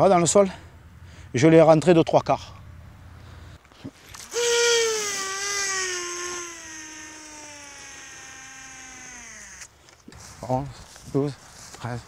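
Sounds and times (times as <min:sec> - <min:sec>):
fishing reel whining: 0:04.1 - 0:09.7
hiss of fishing line: 0:04.1 - 0:09.8.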